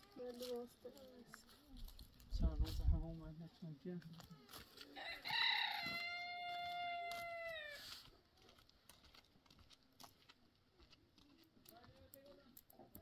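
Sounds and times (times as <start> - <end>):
rooster crowing: 5.0 - 7.8.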